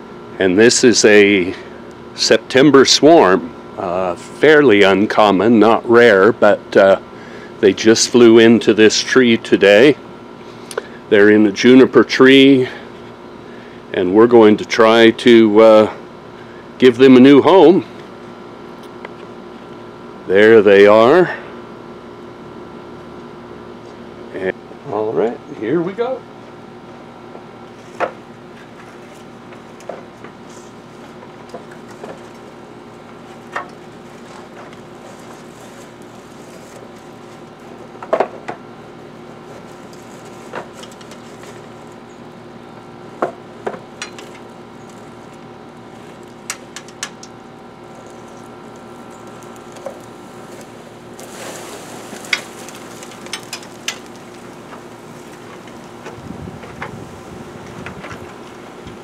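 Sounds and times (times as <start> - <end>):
bee swarm humming: 29.2 - 59.0
sharp clicks and knocks: 46.4 - 47.4, 53.1 - 54.8.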